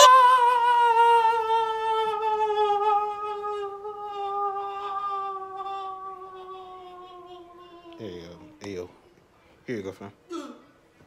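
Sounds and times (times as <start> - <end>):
person humming long note: 0.0 - 8.6.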